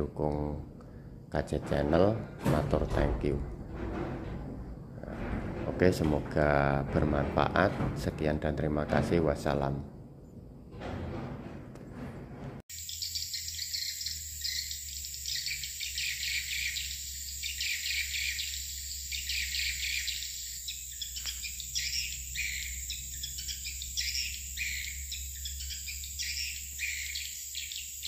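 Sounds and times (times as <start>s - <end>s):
high-pitched insect drone: 12.7s - 28.0s.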